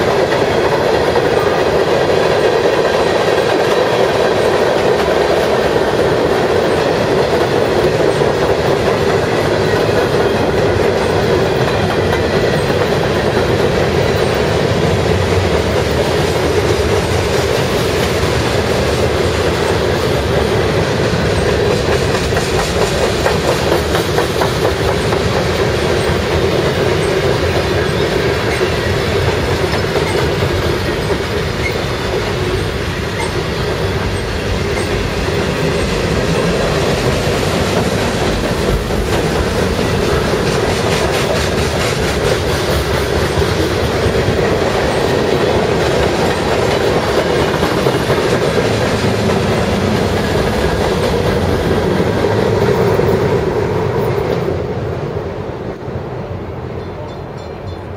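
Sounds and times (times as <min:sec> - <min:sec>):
train wheels rumbling on rails: 0:00.0 - 0:57.9.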